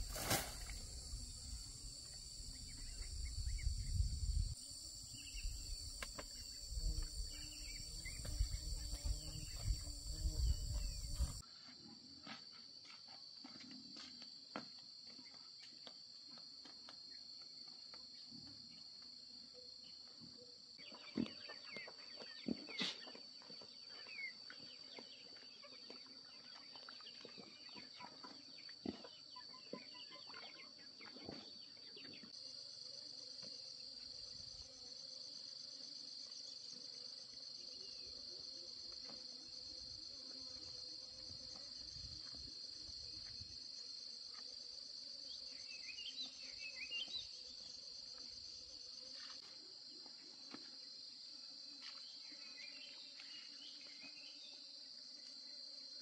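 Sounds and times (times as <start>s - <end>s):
insects shrilling: 0.0s - 11.4s.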